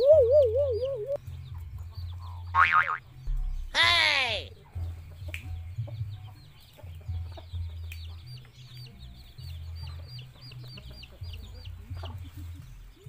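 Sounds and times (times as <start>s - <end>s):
chickens clucking: 0.0s - 13.0s
high peeping calls: 0.0s - 13.0s
low rumble: 3.2s - 3.8s.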